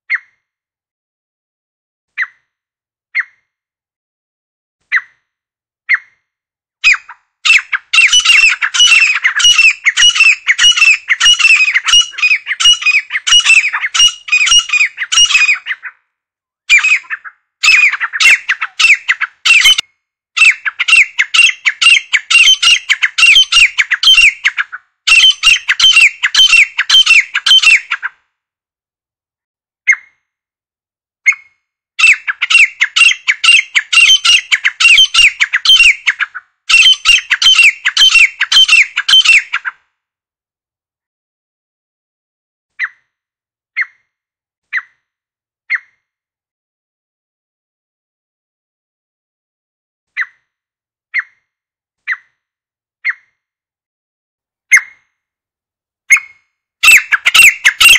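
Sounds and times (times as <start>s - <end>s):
francolin calling shrilly: 6.8s - 15.9s, 16.7s - 19.8s, 20.4s - 28.0s, 32.0s - 39.7s, 56.1s - 57.9s.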